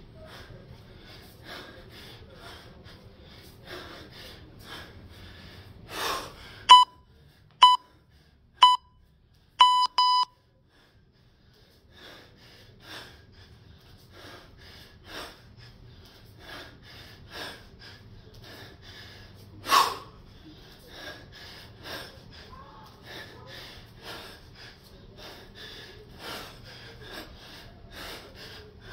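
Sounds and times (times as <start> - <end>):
man breathing hard: 0.1 - 8.8, 10.6 - 28.9
electronic timer beeps: 6.7 - 7.0, 7.6 - 7.8, 8.6 - 8.9, 9.6 - 10.3.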